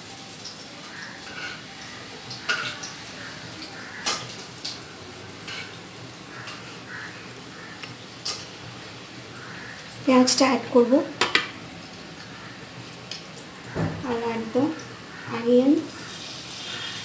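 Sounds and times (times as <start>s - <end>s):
oil heating with low hiss: 0.0s - 17.0s.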